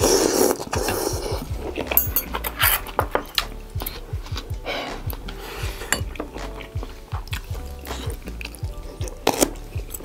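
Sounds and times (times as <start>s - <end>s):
background music with drum beat: 0.0s - 10.0s
loud eating sound: 0.0s - 10.0s.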